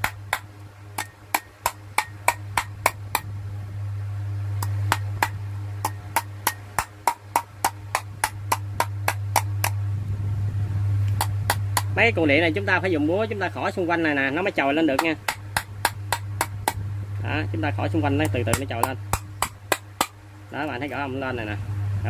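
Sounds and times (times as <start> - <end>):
hammer tapping on metal housing: 0.0 - 3.3, 4.6 - 9.8, 15.0 - 16.8, 18.2 - 20.2
steady low hum: 0.0 - 22.0.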